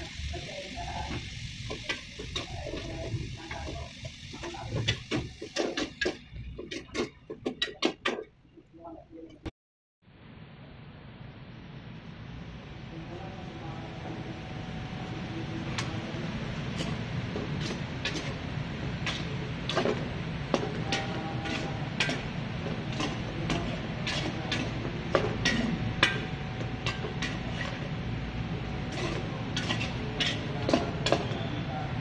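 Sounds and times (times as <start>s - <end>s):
steady low hum: 10.1s - 32.0s
metal spoon scraping steel bowl: 28.9s - 31.4s.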